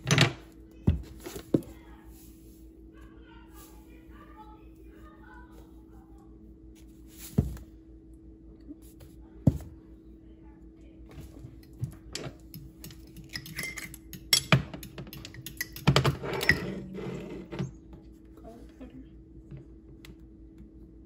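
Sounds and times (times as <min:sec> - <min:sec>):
spoon clinking against glass: 0:12.8 - 0:14.5.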